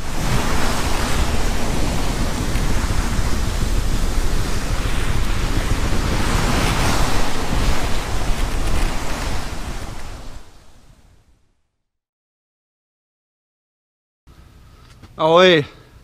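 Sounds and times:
water rushing along hull: 0.0s - 11.2s
wind buffeting microphone: 0.0s - 11.5s.

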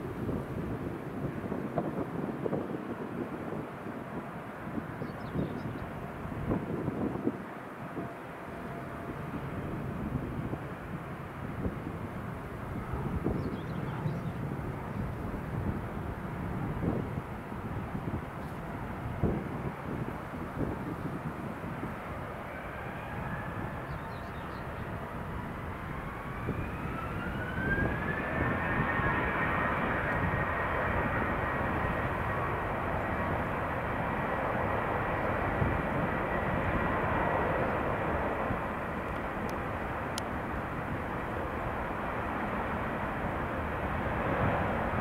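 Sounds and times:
jet engines spooling up: 25.6s - 45.0s.

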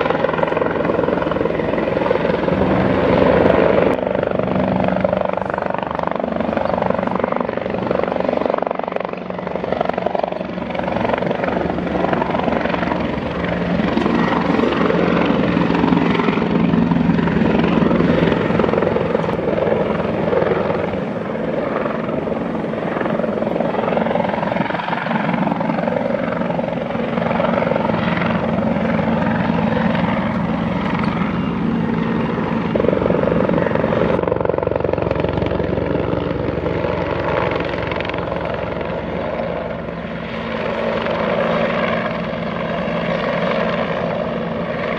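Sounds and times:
helicopter flying past: 0.0s - 44.9s.

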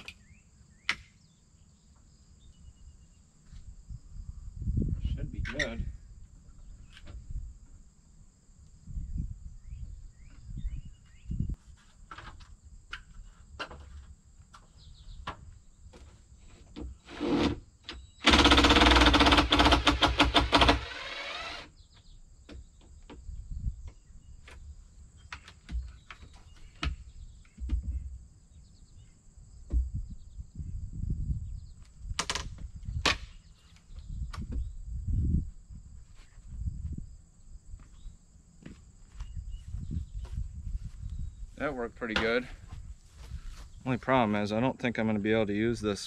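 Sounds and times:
high insect drone: 15.6s - 26.3s
impact driver rattling: 18.2s - 21.7s.

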